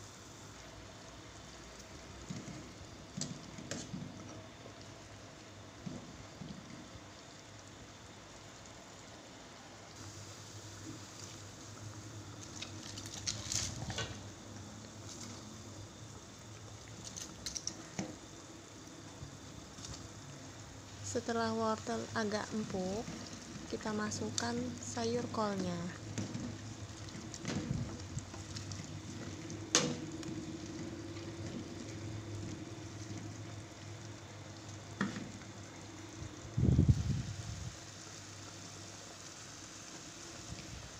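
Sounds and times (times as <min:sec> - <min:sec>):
soup boiling: 0:00.0 - 0:40.9
ladle stirring and knocking pot: 0:02.2 - 0:04.5, 0:22.5 - 0:33.3.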